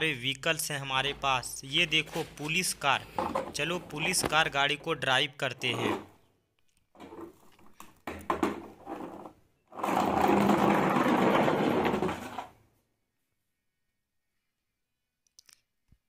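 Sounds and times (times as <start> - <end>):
plastic toy car scraping and clicking: 7.0 - 12.6
toy car rolling with rattling whir: 8.9 - 12.6.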